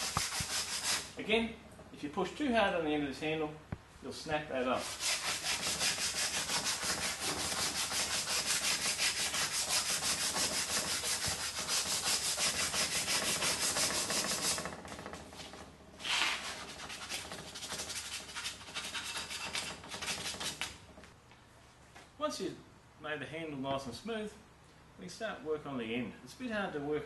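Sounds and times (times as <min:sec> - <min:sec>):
sandpaper rubbing wood: 0:00.0 - 0:01.2, 0:04.8 - 0:14.8, 0:16.0 - 0:20.8.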